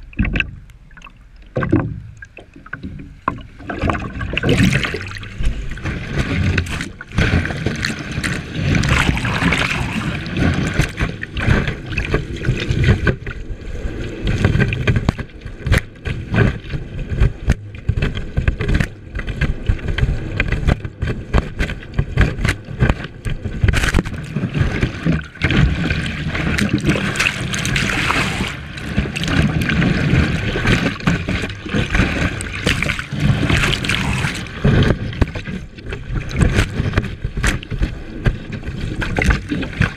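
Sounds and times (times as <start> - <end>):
water spraying and splashing: 4.3 - 12.8, 23.9 - 35.6.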